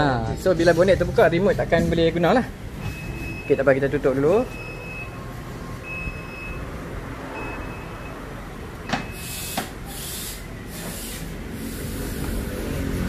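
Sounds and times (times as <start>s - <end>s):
high beeps: 2.8s - 6.7s, 7.3s - 8.2s
pulsing hiss: 9.2s - 13.0s.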